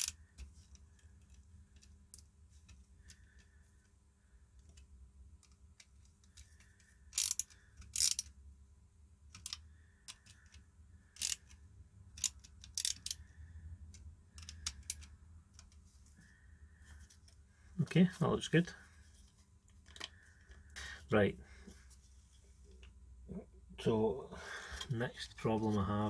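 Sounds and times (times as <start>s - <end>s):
screwdriver bit scraping: 7.1s - 8.3s, 11.2s - 11.6s, 12.2s - 13.2s
screwdriver clicking: 7.1s - 8.3s.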